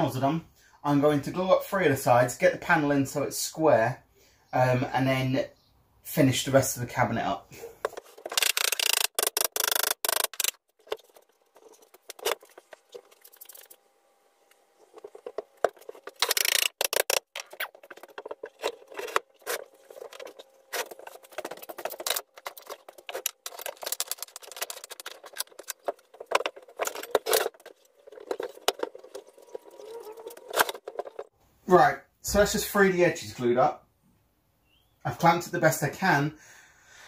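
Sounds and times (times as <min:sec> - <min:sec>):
wooden boards knocking and rattling: 0:14.9 - 0:31.3.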